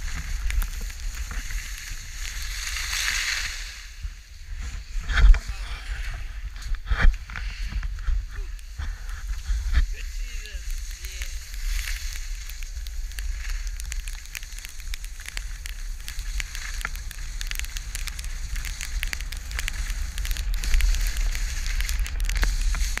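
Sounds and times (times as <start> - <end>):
skis scraping over snow: 0.0 - 23.0
wind rumbling on microphone: 0.0 - 23.0.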